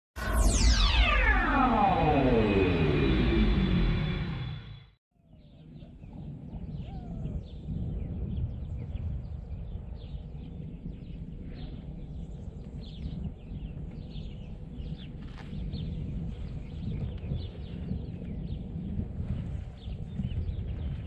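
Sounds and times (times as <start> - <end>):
wind buffeting microphone: 5.4 - 21.0.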